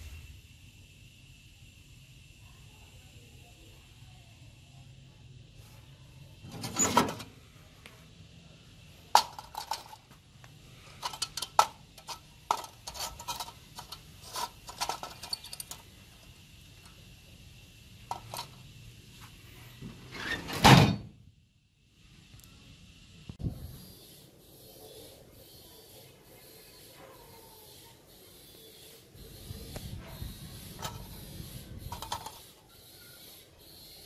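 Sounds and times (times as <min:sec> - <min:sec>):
metal lantern clinking and rattling: 0:09.2 - 0:10.1, 0:11.0 - 0:15.9, 0:18.1 - 0:18.6, 0:31.9 - 0:32.5.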